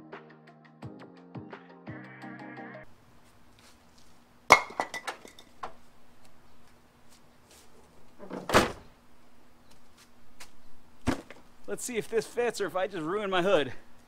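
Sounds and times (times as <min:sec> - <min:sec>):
background music: 0:00.0 - 0:02.9.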